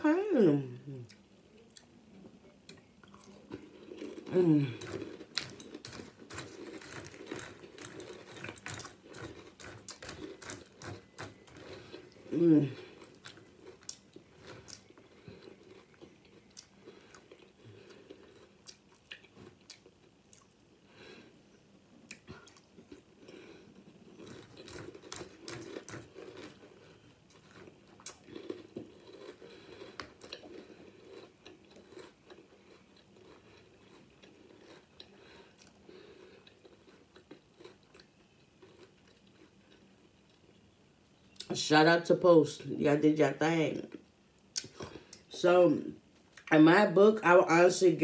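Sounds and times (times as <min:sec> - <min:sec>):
person chewing crunchy cereal: 0:02.8 - 0:21.4, 0:22.0 - 0:40.7.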